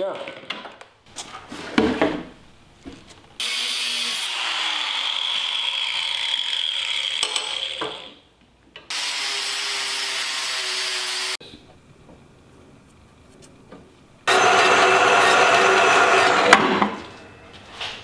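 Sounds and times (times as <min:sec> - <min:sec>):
angle grinder cutting steel: 0:03.4 - 0:08.1, 0:08.9 - 0:11.4, 0:14.3 - 0:17.5.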